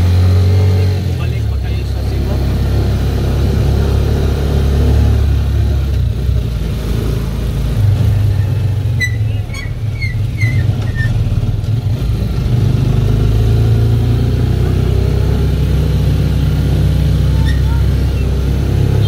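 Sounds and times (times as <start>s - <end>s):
motorcycle engine rumbling: 0.0s - 19.0s
short high squeaks: 9.0s - 11.2s, 17.3s - 19.0s.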